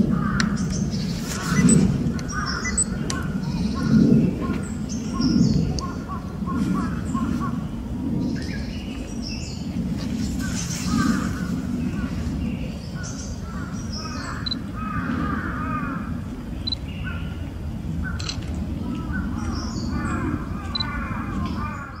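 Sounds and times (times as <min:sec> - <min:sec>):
steady low rumble: 0:00.0 - 0:22.0
bird chirping: 0:00.4 - 0:06.0, 0:16.6 - 0:17.4.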